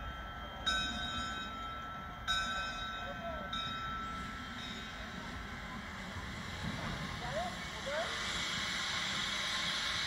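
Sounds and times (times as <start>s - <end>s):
locomotive bell ringing: 0.0s - 5.9s
train low rumble: 0.0s - 10.0s.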